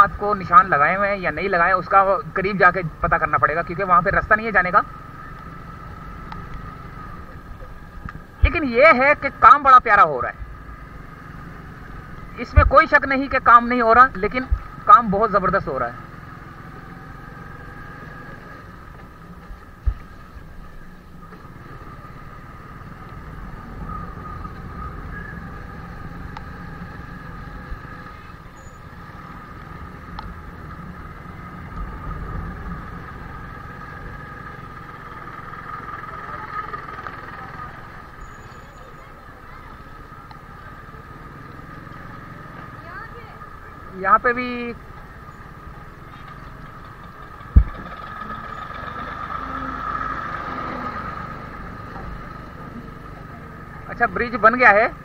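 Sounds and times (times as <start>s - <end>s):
motorcycle engine rumbling: 0.0s - 55.0s
sharp low thump: 47.5s - 47.9s.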